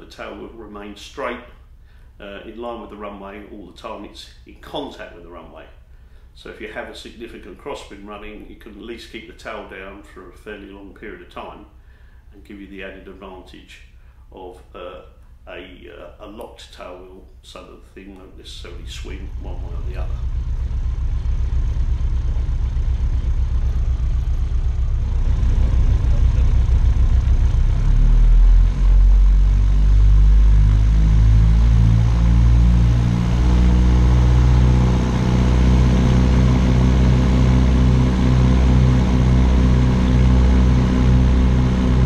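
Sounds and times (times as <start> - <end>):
propeller plane engines roaring: 18.8 - 42.0.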